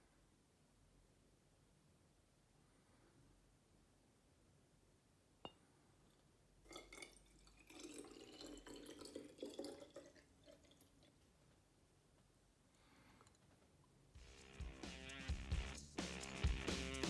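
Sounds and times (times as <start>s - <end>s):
water pouring into glass flask: 6.7s - 11.3s.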